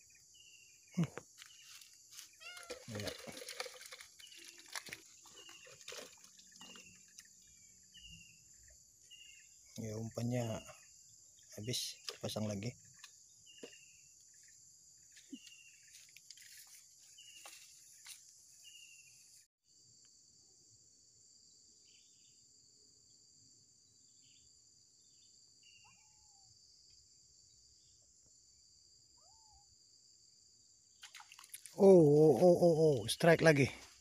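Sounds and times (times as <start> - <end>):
crickets chirping: 0.0 - 34.0
falling bird calls: 25.6 - 26.4.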